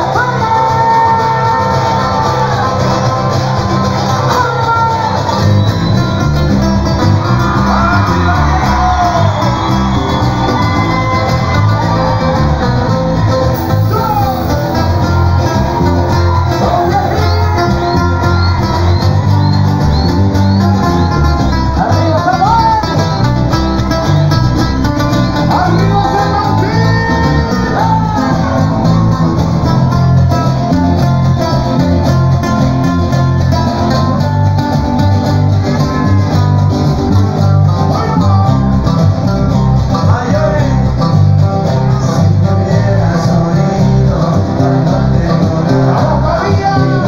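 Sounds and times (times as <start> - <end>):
person singing: 0.0 - 5.6, 10.6 - 23.3, 25.2 - 30.7, 37.7 - 47.0
live band through speakers: 0.0 - 47.0.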